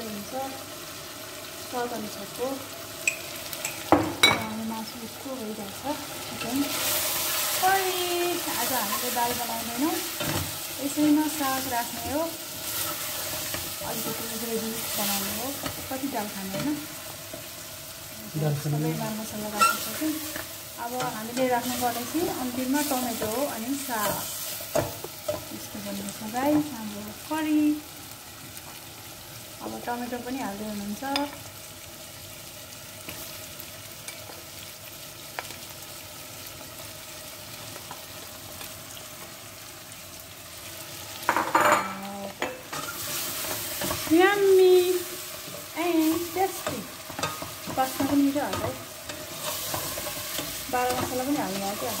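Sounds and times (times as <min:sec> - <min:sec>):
chicken sizzling in a pot: 0:00.0 - 0:52.0
spatula scraping a pot: 0:19.4 - 0:20.4.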